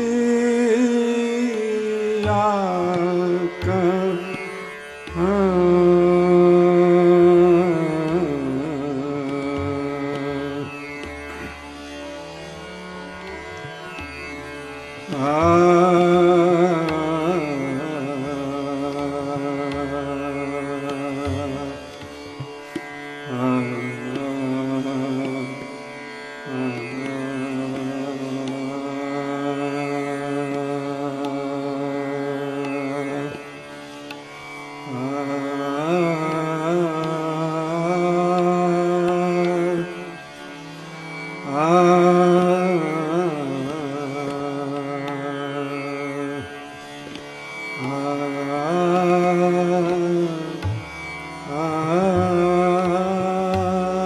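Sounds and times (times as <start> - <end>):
classical singing: 0.0 - 11.5, 15.0 - 25.7, 34.8 - 40.2, 41.4 - 54.0.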